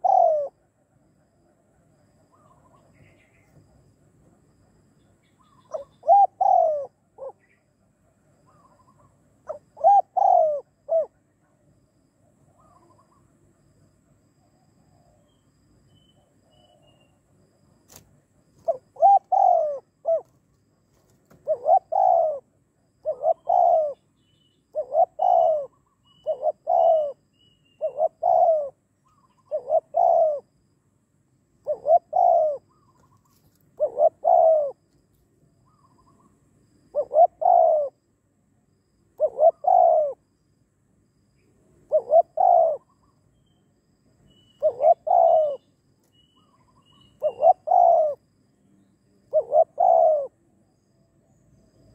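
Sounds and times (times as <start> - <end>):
dove cooing: 0.0 - 0.8, 5.4 - 7.7, 8.5 - 11.4, 18.6 - 20.4, 21.0 - 24.1, 24.7 - 30.6, 31.6 - 34.8, 36.9 - 38.0, 39.2 - 40.2, 41.9 - 43.1, 44.6 - 45.7, 46.4 - 48.2, 49.2 - 50.5.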